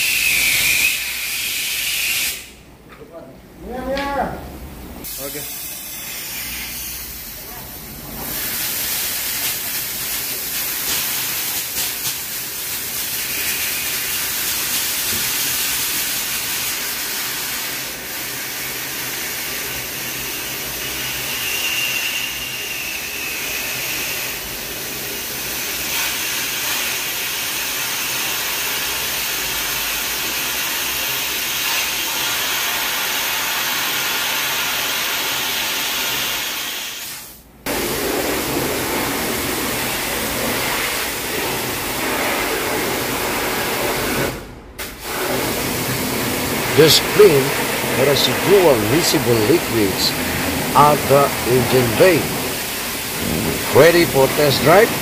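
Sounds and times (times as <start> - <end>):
compressed air hissing: 0.0 - 2.6, 5.0 - 5.9, 8.2 - 22.6, 25.1 - 55.0
water spraying out: 37.7 - 55.0.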